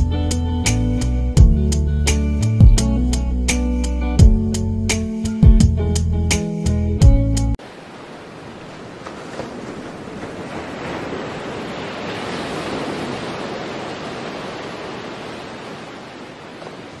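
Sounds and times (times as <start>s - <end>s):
waves washing: 7.6s - 17.0s.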